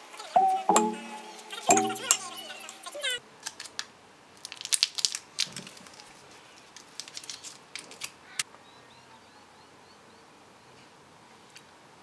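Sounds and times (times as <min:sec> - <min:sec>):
foil wrapper crinkling: 0:04.4 - 0:08.1.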